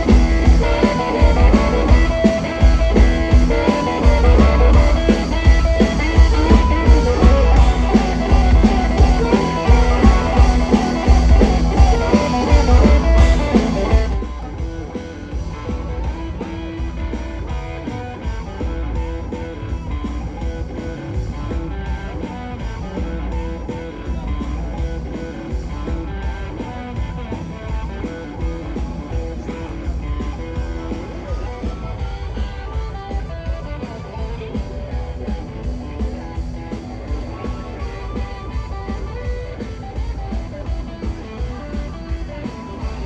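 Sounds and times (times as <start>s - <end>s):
harmonica: 0.0s - 14.8s
drums with steady beat: 0.0s - 43.0s
electric guitar: 0.0s - 43.0s
quiet guitar music: 0.0s - 43.0s.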